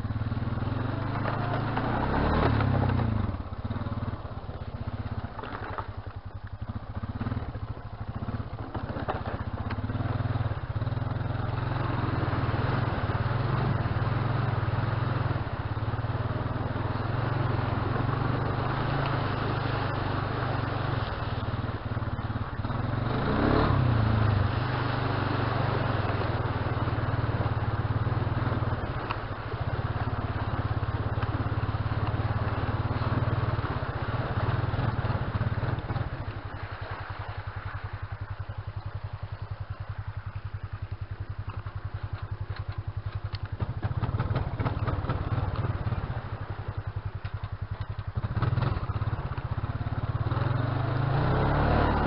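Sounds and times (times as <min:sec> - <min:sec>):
quad bike engine revving: 0:00.0 - 0:04.2, 0:06.7 - 0:36.2, 0:43.5 - 0:46.4, 0:47.8 - 0:52.0
steady rushing noise: 0:00.0 - 0:52.0.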